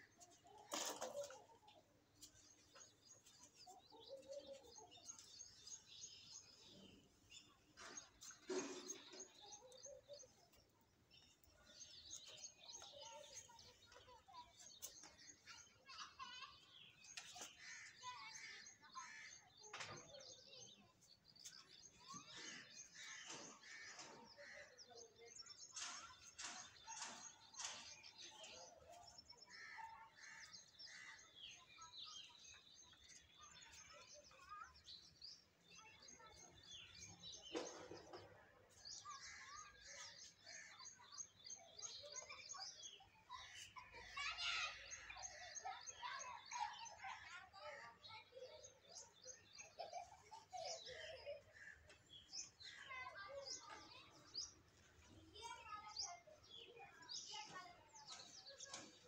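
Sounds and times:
birds chirping: 0.0s - 59.0s.

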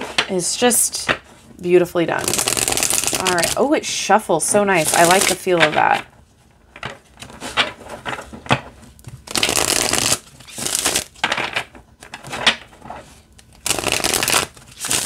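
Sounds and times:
cards riffle-shuffled: 2.2s - 3.6s, 4.8s - 5.8s, 9.2s - 11.2s, 13.5s - 15.0s.

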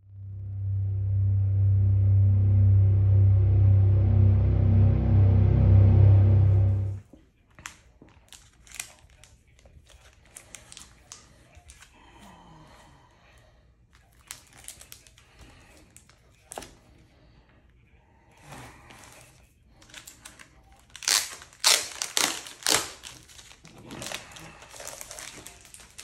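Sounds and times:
intro music: 0.0s - 7.0s
plastic shrink wrap crinkling: 7.6s - 11.8s, 13.9s - 16.7s, 18.9s - 26.0s.

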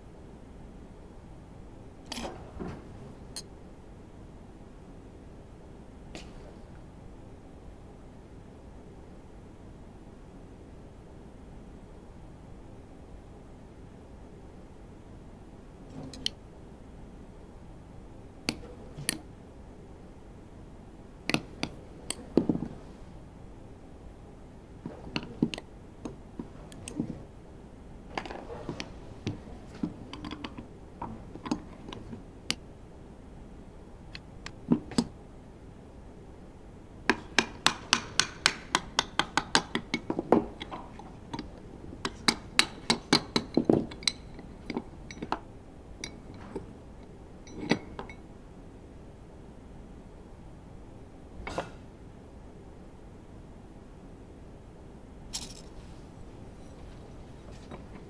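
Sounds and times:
light metallic clicks and clinks: 55.4s - 55.8s.

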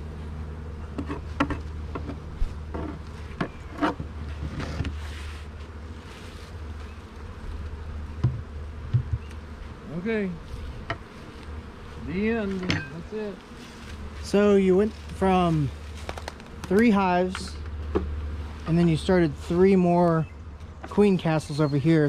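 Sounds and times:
bees buzzing: 0.0s - 22.0s
hive lid dull thuds: 7.7s - 9.5s, 15.9s - 18.2s.

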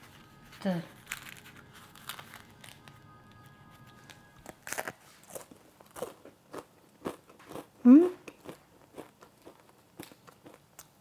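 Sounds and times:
bread crust crunching: 0.1s - 11.0s.

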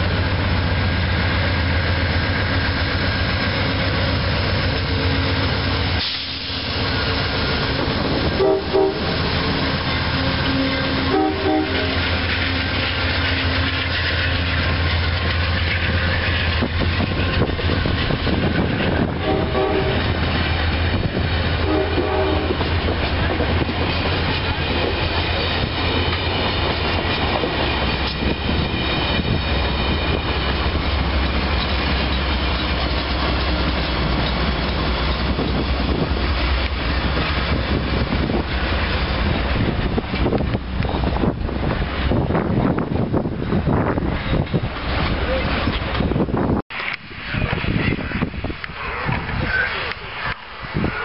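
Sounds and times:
train wheels clattering on rails: 0.0s - 47.0s
diesel locomotive drone: 0.0s - 51.0s
train horn notes: 8.3s - 9.2s, 10.1s - 12.7s, 19.0s - 20.3s, 21.5s - 22.8s.

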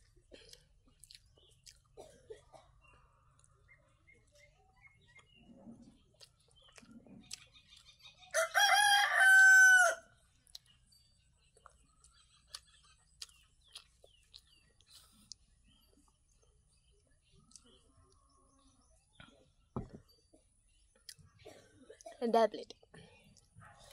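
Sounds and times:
faint chewing and eating clicks: 0.0s - 8.4s, 10.3s - 19.5s, 20.8s - 23.9s
rooster crowing: 8.3s - 10.1s.

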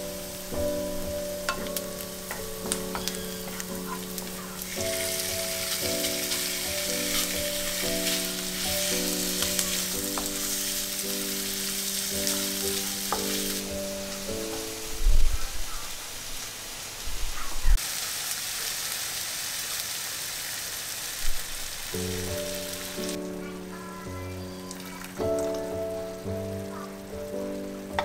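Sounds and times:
soft background music: 0.0s - 15.3s, 22.0s - 28.0s
onion sizzling in frying pan: 0.0s - 28.0s
wooden spatula stirring: 1.4s - 14.8s.

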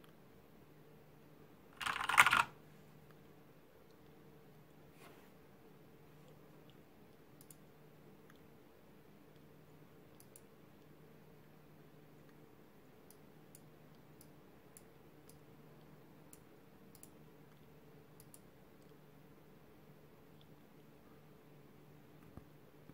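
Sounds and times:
faint low hum: 0.0s - 22.9s
faint sharp high ticks: 7.4s - 7.6s, 10.2s - 10.5s, 16.3s - 17.2s, 18.2s - 19.0s.

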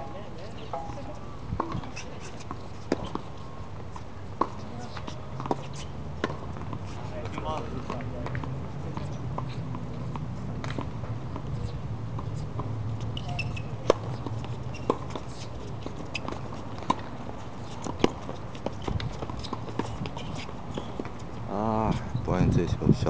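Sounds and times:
tennis ball bouncing on court: 0.6s - 3.4s, 4.4s - 21.2s
tennis ball hit by rackets: 6.2s - 9.1s.

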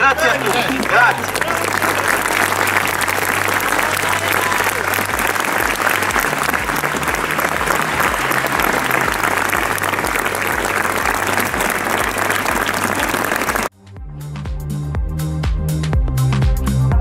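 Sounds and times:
crowd applauding: 0.0s - 13.7s.

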